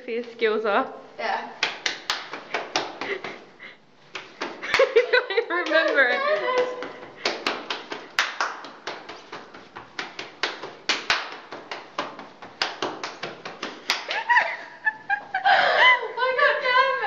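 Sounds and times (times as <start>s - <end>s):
hand claps: 1.6s - 3.4s, 4.1s - 14.6s.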